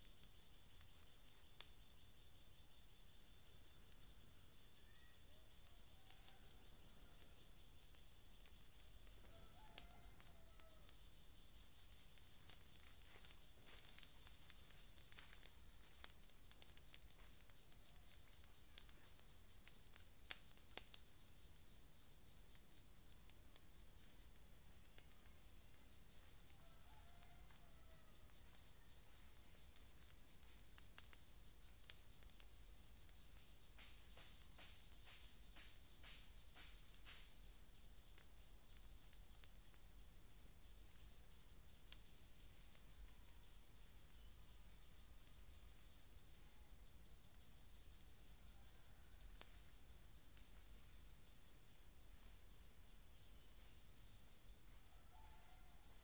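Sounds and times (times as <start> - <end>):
faint crackles and clicks: 0.0 - 56.0
faint bird call: 4.6 - 7.6.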